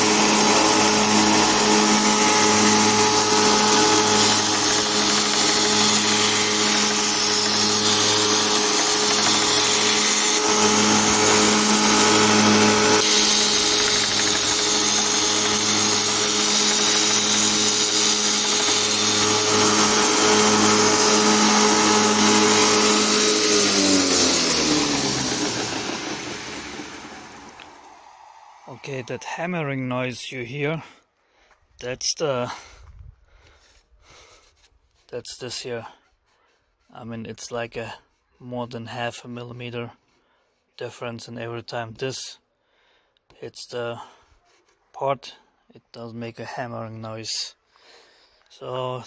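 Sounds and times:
belt grinder motor hum: 0.0 - 29.2
metal grinding hiss: 0.0 - 29.8.

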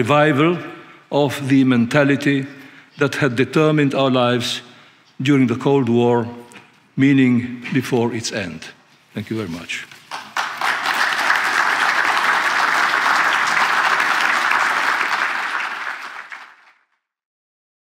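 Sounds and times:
audience applauding: 10.1 - 16.8.

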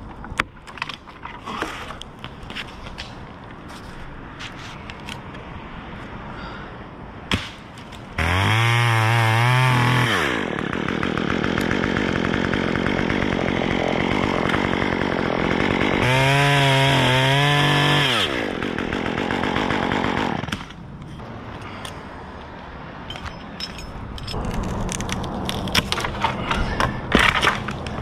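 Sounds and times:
chainsaw cutting wood: 8.2 - 20.8, 24.4 - 28.0.

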